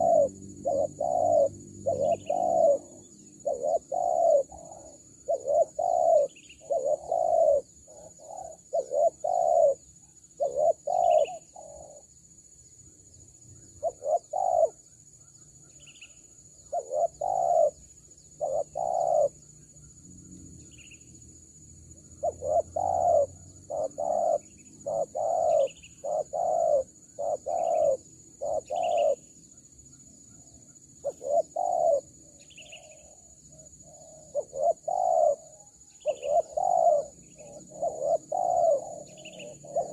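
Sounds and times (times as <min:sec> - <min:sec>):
faint high chirp: 0:00.0 - 0:12.0, 0:22.1 - 0:39.9
doves cooing: 0:00.0 - 0:12.1, 0:13.8 - 0:14.8, 0:16.6 - 0:19.4, 0:22.1 - 0:29.3, 0:31.0 - 0:39.9.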